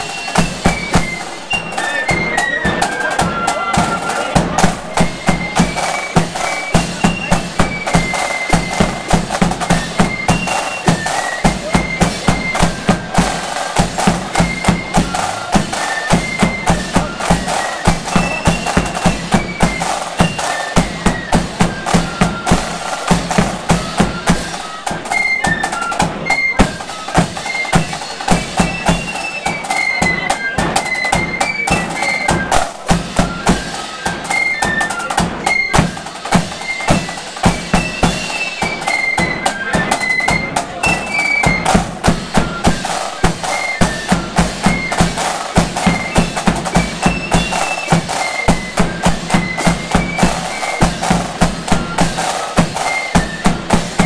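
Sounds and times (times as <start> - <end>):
flutes playing melody: 0.0 - 54.0
rattling side drums: 0.0 - 54.0.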